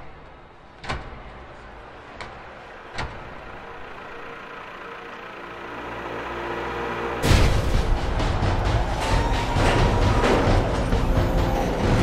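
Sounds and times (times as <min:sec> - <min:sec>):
low mechanical hum: 0:00.0 - 0:07.6
sharp hits: 0:07.1 - 0:12.0.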